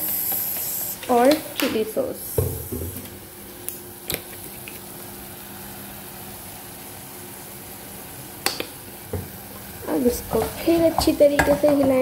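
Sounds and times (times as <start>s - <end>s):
low hiss of gas burner: 0.0s - 12.0s.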